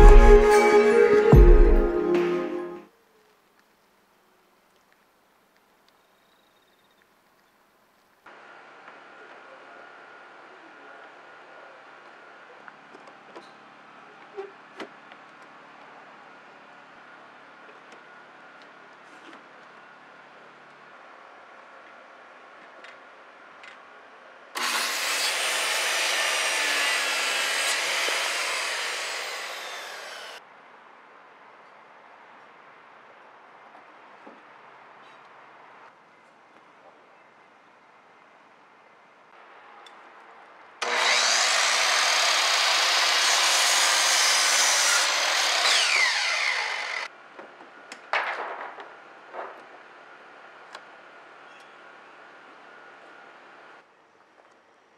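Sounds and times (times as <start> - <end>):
faint clicks: 3.2 - 6.2
circular saw cutting wood: 24.6 - 30.4, 40.8 - 47.1.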